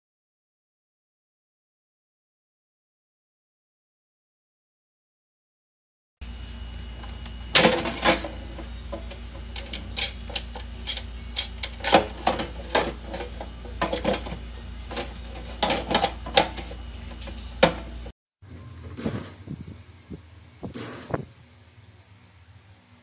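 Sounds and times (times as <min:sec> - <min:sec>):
steady low hum: 0:06.2 - 0:23.0
air fryer basket clicks and knocks: 0:07.5 - 0:18.0.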